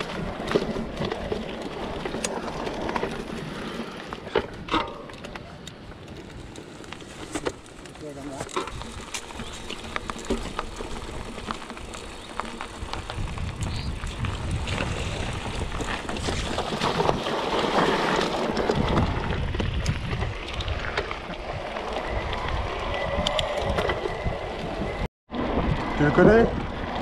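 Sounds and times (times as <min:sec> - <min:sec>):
bike tyres rolling on gravel: 0:00.0 - 0:27.0
wind buffeting microphone: 0:08.7 - 0:17.3, 0:18.5 - 0:27.0.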